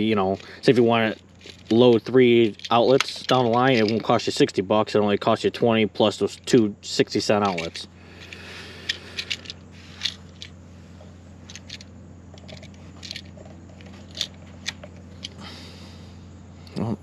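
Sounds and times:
small clicks and scrapes: 0.1 - 4.1, 7.4 - 15.4.

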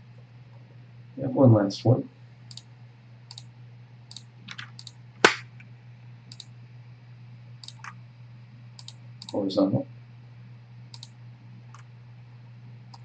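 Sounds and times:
low steady hum: 0.0 - 13.0
computer mouse clicking: 2.5 - 2.7, 3.3 - 3.5, 4.1 - 5.0, 7.6 - 8.0, 8.8 - 9.4, 10.9 - 11.1.

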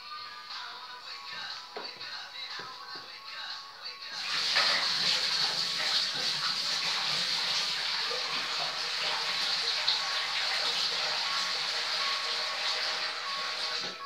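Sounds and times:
water pouring into aquarium: 4.2 - 14.0.

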